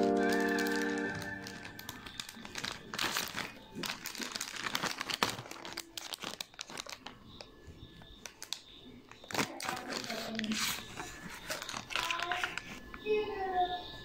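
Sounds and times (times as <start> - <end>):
plastic packet crinkling: 0.0 - 7.6, 8.2 - 13.0.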